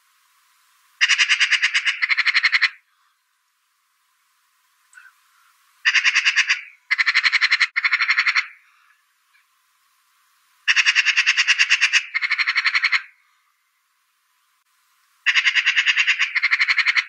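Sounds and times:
magpie chattering: 1.0s - 2.8s, 5.8s - 8.6s, 10.7s - 13.2s, 15.3s - 17.0s.

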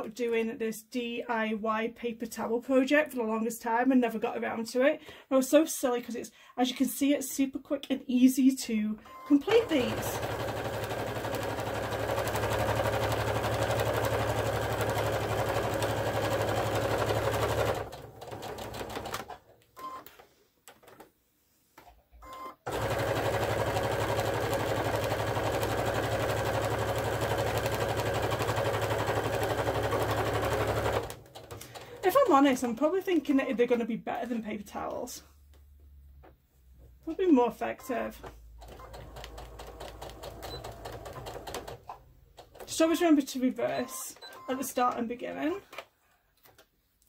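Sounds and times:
sewing machine stitching: 9.1s - 19.4s, 22.7s - 32.7s, 37.8s - 43.1s.

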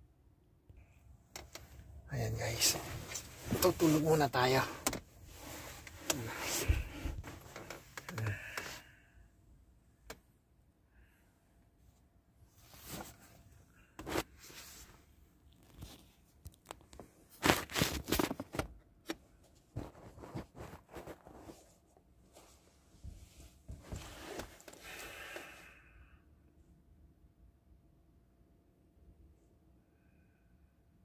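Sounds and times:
handling clicks and rustles: 2.6s - 8.4s.

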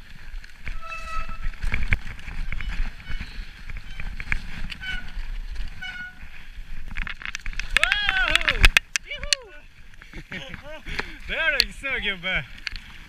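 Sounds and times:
bike rumbling on rough trail: 0.0s - 13.0s
short squeaks: 0.7s - 1.7s, 2.4s - 6.2s
bike rattling clicks: 6.8s - 11.8s.

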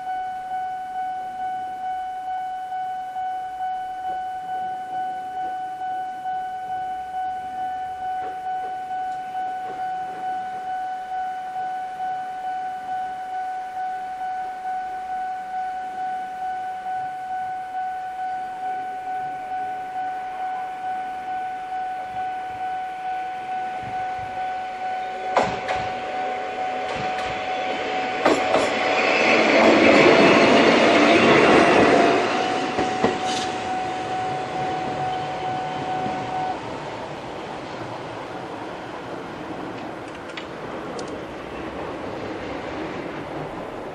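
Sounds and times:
electronic crossing warning bell: 0.0s - 39.1s
train wheel clacks: 25.4s - 26.1s, 26.7s - 35.4s.

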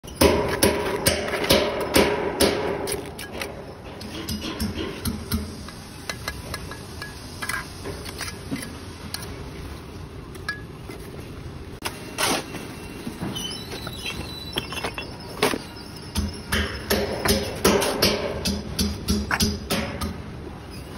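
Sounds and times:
trowel tapping on bricks: 16.2s - 20.2s.

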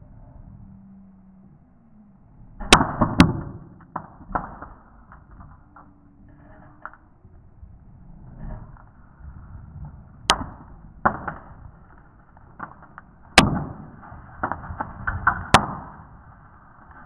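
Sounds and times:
loud sharp cracks: 2.6s - 5.6s, 10.3s - 16.2s.

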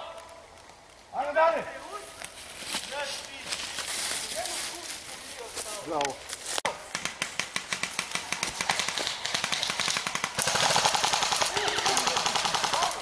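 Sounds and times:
airsoft guns firing bursts: 6.8s - 13.0s.

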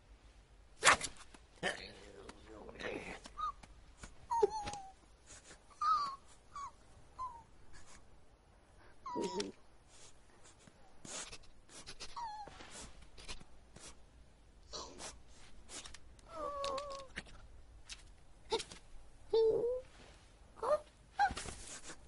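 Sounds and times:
small clicks and rustles: 15.8s - 18.9s.

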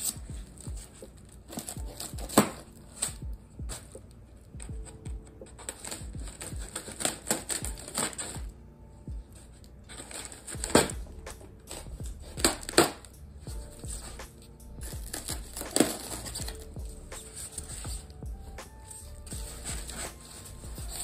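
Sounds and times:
styrofoam crunching and cracking: 4.8s - 8.5s, 9.9s - 13.1s, 14.8s - 21.0s.

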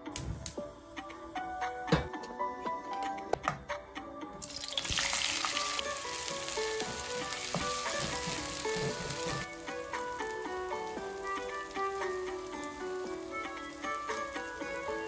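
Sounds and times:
light background music: 0.0s - 15.0s
onions sizzling in hot oil: 4.4s - 15.0s
spatula stirring in pan: 4.6s - 15.0s.

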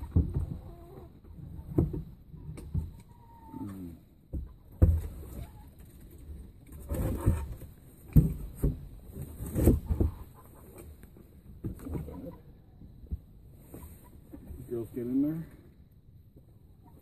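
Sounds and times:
knocks and thumps: 0.0s - 3.0s, 4.3s - 5.5s, 6.8s - 10.3s.

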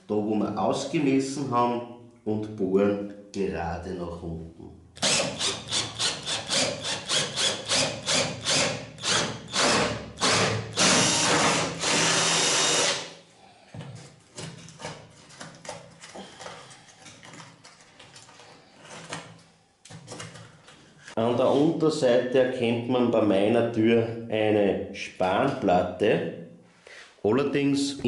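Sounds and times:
cordless drill boring into wood: 5.0s - 13.1s
faint knocks and scrapes: 13.6s - 21.2s.

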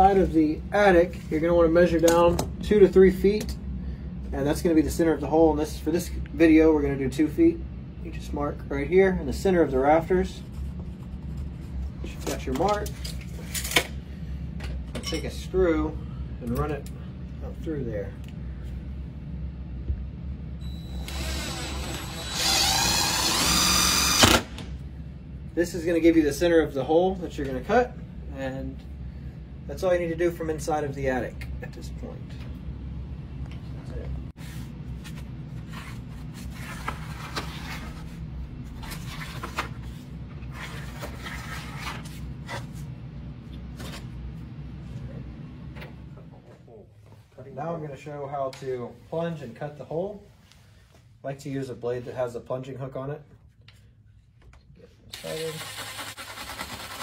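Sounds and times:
steady low hum: 0.0s - 57.0s
cordless drill motor whine: 20.6s - 24.5s.

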